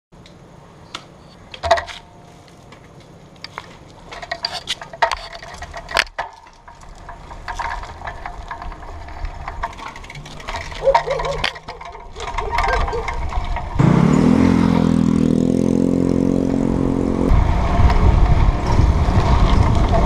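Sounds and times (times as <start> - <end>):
bicycle rattling and clicking: 1.4 - 15.9, 17.6 - 20.0.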